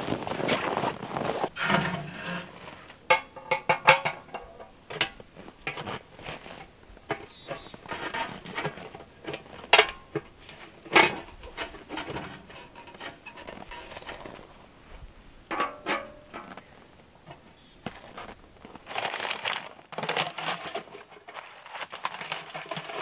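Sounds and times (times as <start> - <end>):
metal stove parts clanking: 1.6 - 14.4, 15.5 - 16.6
metal ringing: 15.5 - 16.6.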